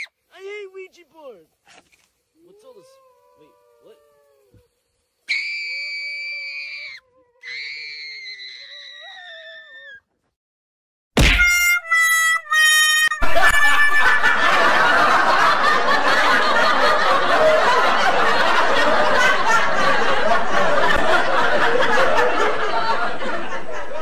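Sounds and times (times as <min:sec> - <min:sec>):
high-pitched scream: 0:05.2 - 0:10.0, 0:11.2 - 0:14.3
crowd laughing: 0:13.1 - 0:24.0.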